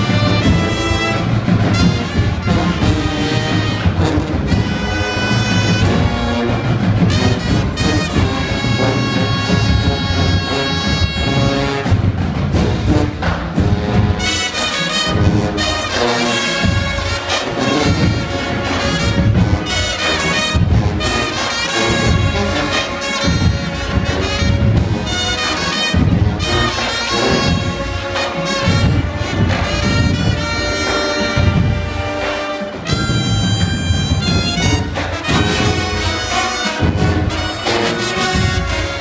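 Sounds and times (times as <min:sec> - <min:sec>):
brass horns playing: 0:00.0 - 0:39.0
drumline beats: 0:00.0 - 0:39.0.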